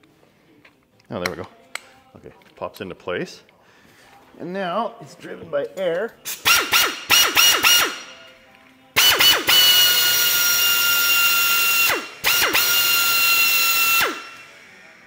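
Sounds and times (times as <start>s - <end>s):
air tool whining: 6.3s - 8.2s, 9.0s - 15.0s.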